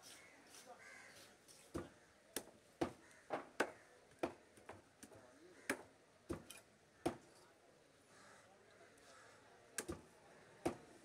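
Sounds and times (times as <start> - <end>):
cleaver chopping on wooden block: 1.8 - 4.8.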